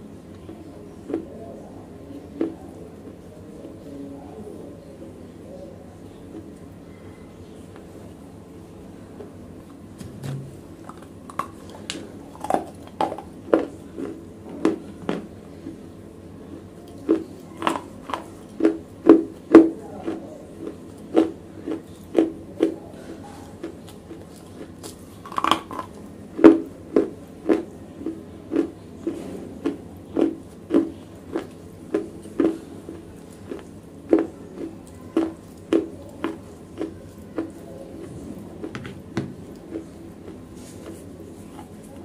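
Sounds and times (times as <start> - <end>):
slate crunching being chewed: 10.0 - 42.0.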